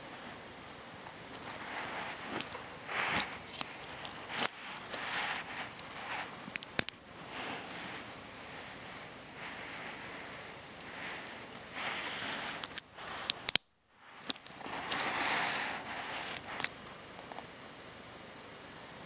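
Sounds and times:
metal links clinking and rustling: 1.3s - 8.1s, 10.8s - 15.2s, 15.8s - 16.8s
sharp metal clasp clicks: 12.6s - 14.6s.

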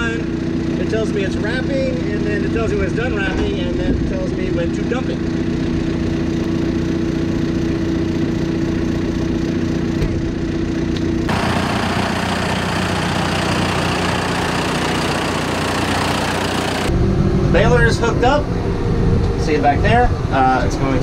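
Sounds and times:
diesel tractor engine idling: 5.2s - 16.9s
noisy hissy engine: 11.3s - 18.8s.

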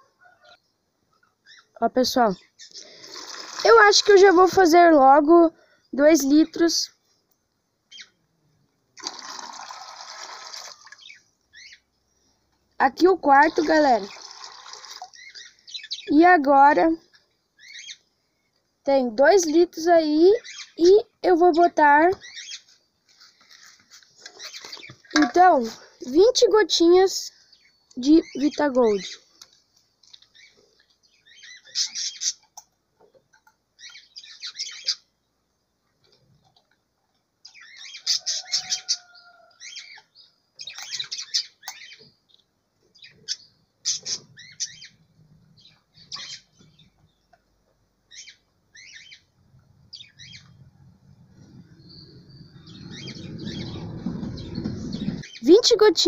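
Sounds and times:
small birds chirping: 0.0s - 8.9s, 10.8s - 56.0s
low rumbling noise: 49.4s - 55.4s.

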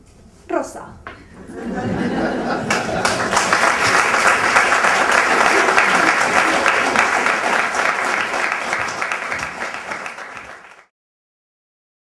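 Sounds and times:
audience applauding: 2.4s - 10.9s.

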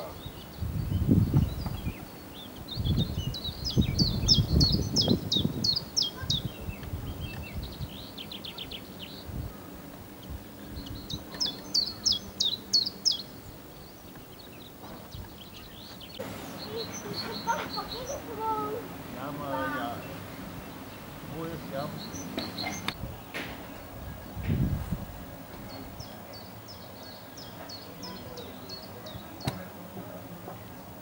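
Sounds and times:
songbirds singing: 0.0s - 31.0s
low rumbling gusts: 0.1s - 11.4s, 13.4s - 26.8s
bird trill: 10.6s - 18.8s, 21.8s - 23.0s.

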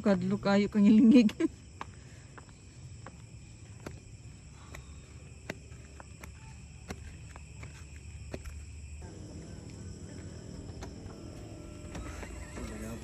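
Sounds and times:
night insects chirring: 0.0s - 13.0s
flip-flop footsteps on concrete: 1.2s - 12.6s
low steady hum: 8.0s - 13.0s.

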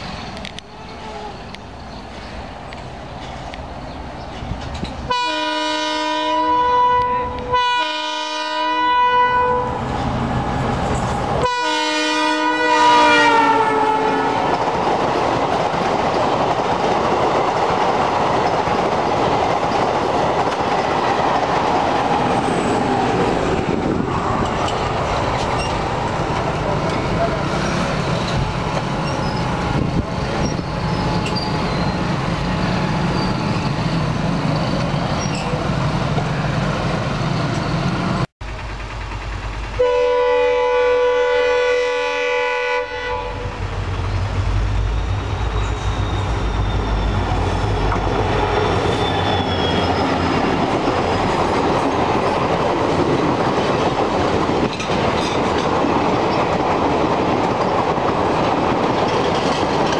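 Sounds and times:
train coaches clattering past: 0.0s - 59.9s
locomotive horn blast: 5.1s - 9.8s, 11.4s - 14.5s, 39.8s - 43.6s.

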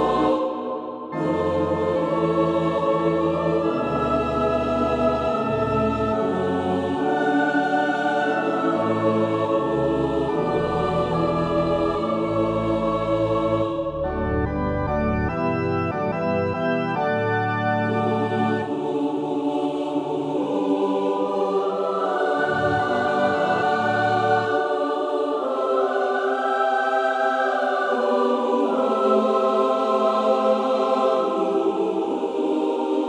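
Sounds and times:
choir singing harmonies: 0.0s - 33.0s
organ playing chords: 1.2s - 19.1s, 21.8s - 25.6s.

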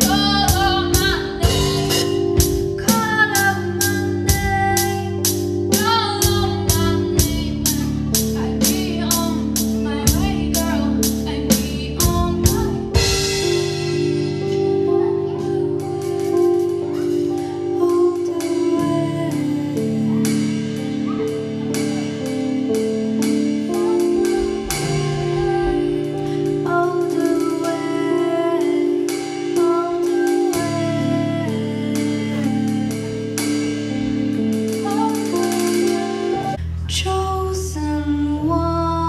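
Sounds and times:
woman singing: 0.0s - 13.7s, 14.8s - 22.2s, 23.2s - 39.0s
keyboard chords: 0.0s - 36.9s
bass: 0.0s - 39.0s
drum hits: 21.0s - 27.4s.

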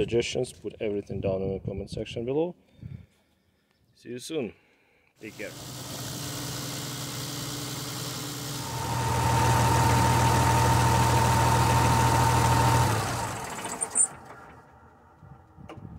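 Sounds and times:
diesel engine idling: 5.3s - 15.2s.

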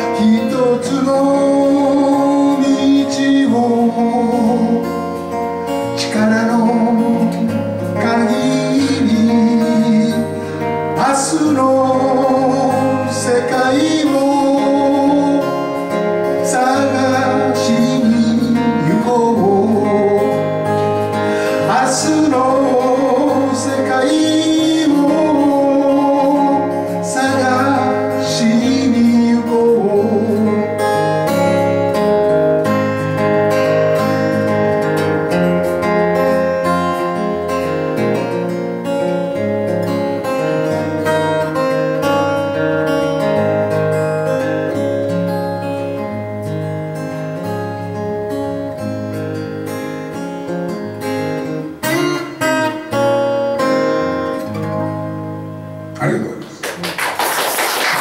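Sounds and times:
man singing: 0.0s - 31.8s
acoustic guitar strumming: 0.0s - 58.0s.

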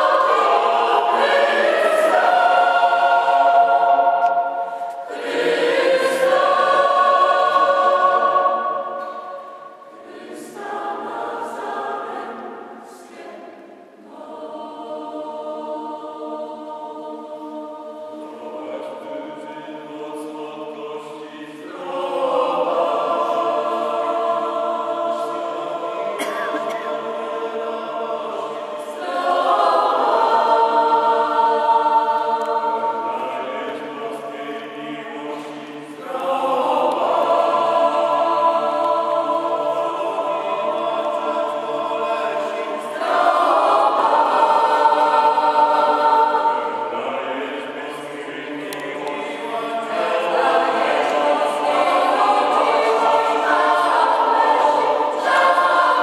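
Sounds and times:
mixed choir singing: 0.0s - 56.0s.

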